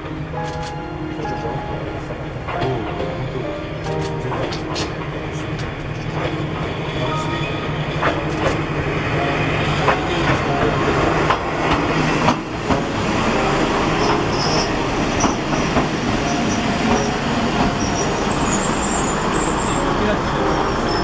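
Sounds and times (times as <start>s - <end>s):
train wheels clicking on rail joints: 3.8s - 21.0s
train wheels squealing: 14.0s - 17.2s, 17.8s - 21.0s.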